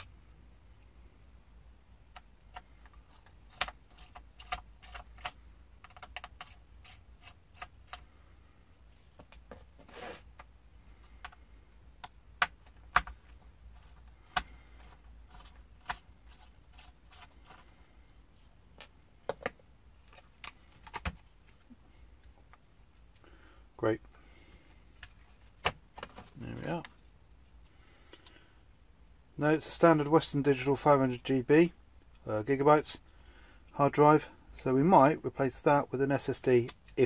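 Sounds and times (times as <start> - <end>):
screwdriver and screws clicking: 3.5 - 8.0.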